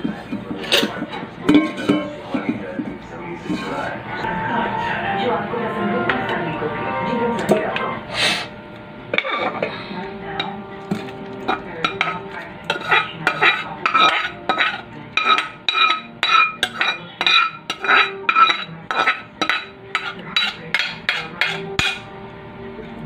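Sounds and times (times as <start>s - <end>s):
spoon clinking in metal bowl: 10.4s - 22.1s.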